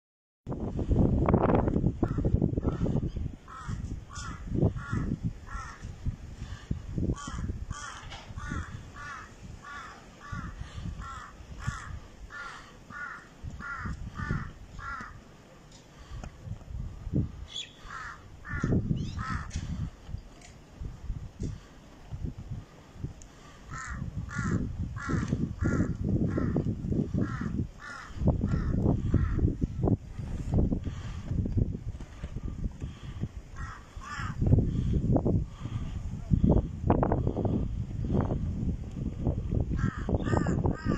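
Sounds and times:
crows cawing: 2.0s - 5.9s, 7.1s - 15.2s, 17.5s - 19.8s, 23.7s - 29.5s, 32.9s - 34.9s, 39.8s - 40.9s.

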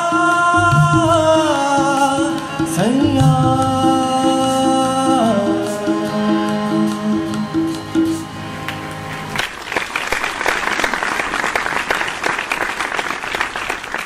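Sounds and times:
harmonium notes: 0.0s - 9.8s
audience applause: 9.4s - 14.0s.

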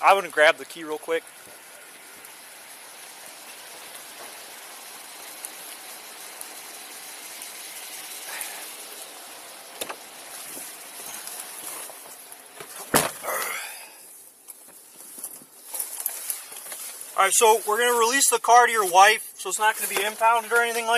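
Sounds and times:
rain and wind hiss: 0.0s - 20.9s
car door shutting: 12.7s - 13.3s.

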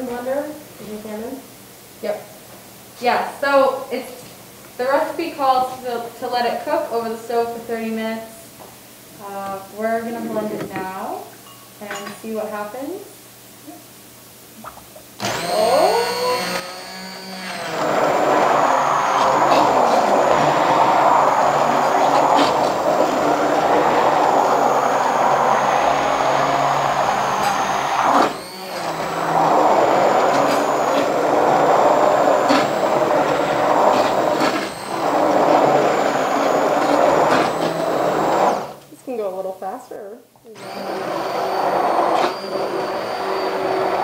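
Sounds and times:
immersion blender motor whining: 15.2s - 38.8s, 40.6s - 44.0s.

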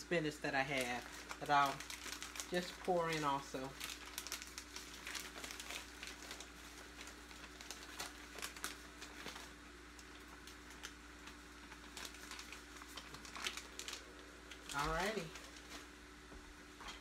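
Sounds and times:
plastic bag crinkling: 0.1s - 16.0s
faint crackles: 0.8s - 15.9s.

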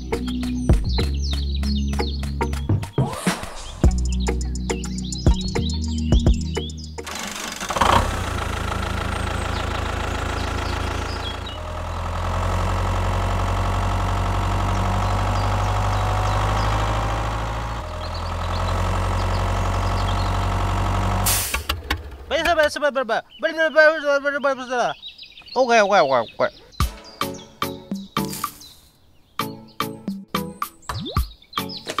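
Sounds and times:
engine idling: 7.0s - 22.8s.

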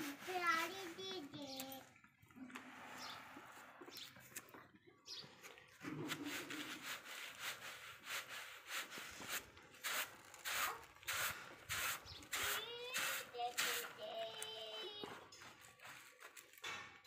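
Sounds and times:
hand sweeping grain on sack: 6.1s - 14.0s.

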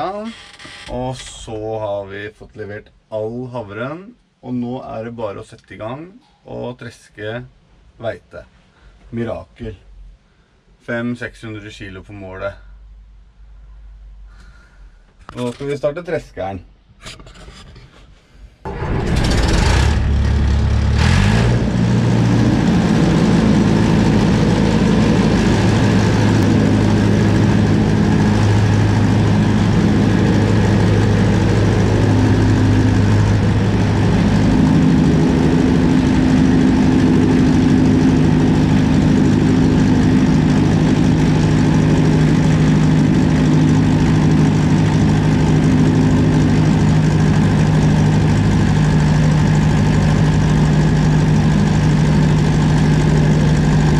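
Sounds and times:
diesel engine starting and running: 18.7s - 53.9s.

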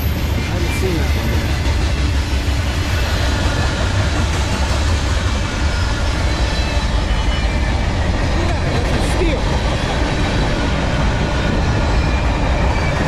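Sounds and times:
freight train rumbling past: 0.0s - 13.0s.

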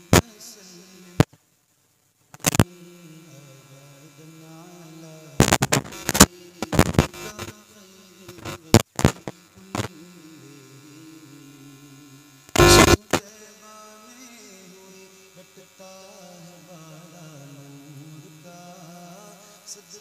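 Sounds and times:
electrical mains hum: 0.0s - 20.0s
loud sudden crackles: 5.4s - 7.4s, 12.6s - 13.2s.

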